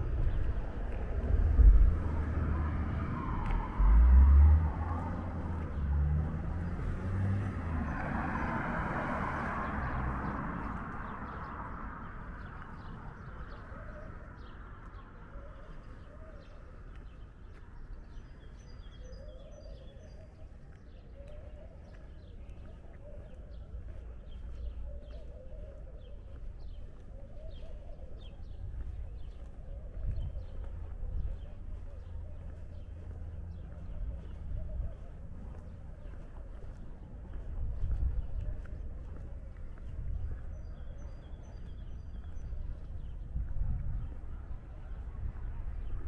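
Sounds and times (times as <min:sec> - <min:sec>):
vehicle rumbling past: 0:00.0 - 0:13.0
birds chirping: 0:09.4 - 0:46.0.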